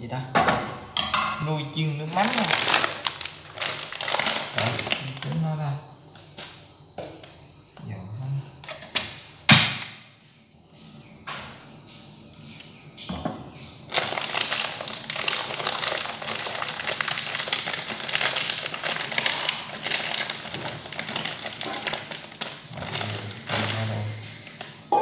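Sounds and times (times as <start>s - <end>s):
plastic bag crinkling: 1.8s - 5.6s, 13.9s - 25.0s.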